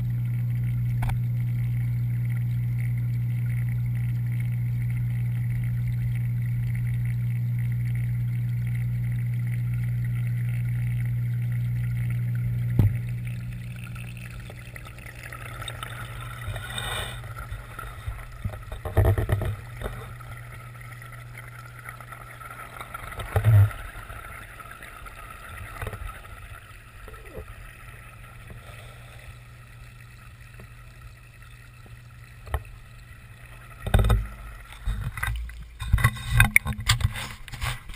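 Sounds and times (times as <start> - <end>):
faint water noise: 0.0 - 37.9
low underwater hum: 0.0 - 37.9
knock underwater: 12.6 - 13.2, 17.4 - 20.2, 33.8 - 37.8.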